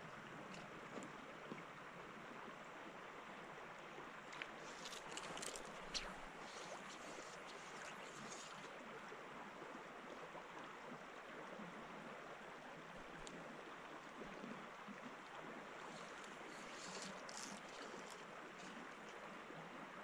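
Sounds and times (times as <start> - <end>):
river water rushing: 4.4 - 8.8, 15.7 - 19.1.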